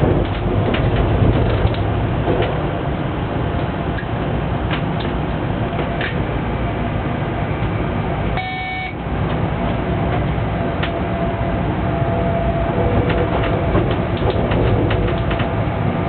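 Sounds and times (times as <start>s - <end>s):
locomotive cab rumble: 0.0s - 16.0s
short electronic beep: 8.4s - 9.0s.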